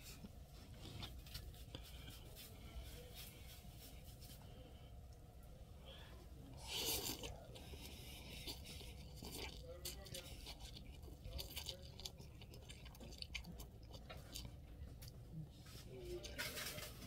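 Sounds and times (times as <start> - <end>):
noodle slurp: 6.6 - 13.4.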